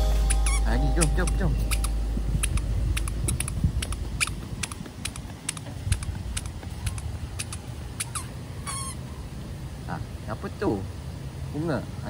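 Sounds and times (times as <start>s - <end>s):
footsteps on hard deck: 2.2s - 7.6s.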